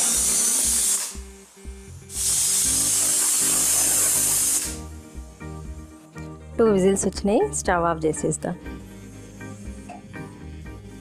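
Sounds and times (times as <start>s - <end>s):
pressure cooker whistling: 0.0s - 1.2s, 2.1s - 4.8s.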